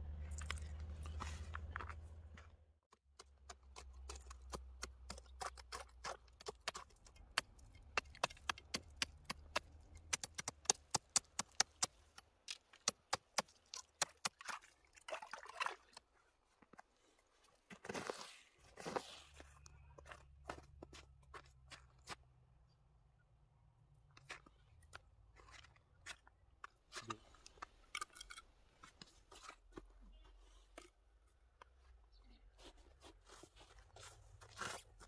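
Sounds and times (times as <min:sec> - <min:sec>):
knife chipping ice: 0:03.2 - 0:14.7.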